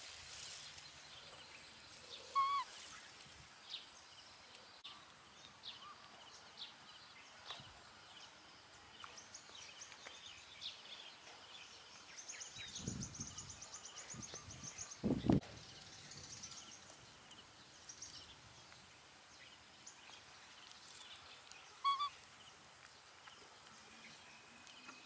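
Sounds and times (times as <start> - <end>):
rustle of grass: 0.0 - 7.9, 8.7 - 25.0
bird chirps: 1.2 - 3.1, 19.4 - 22.6.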